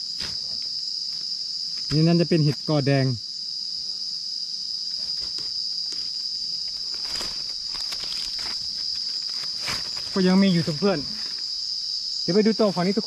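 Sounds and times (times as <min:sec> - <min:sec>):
forest insects buzzing: 0:00.0 - 0:13.0
dry leaves rustling: 0:06.6 - 0:11.6.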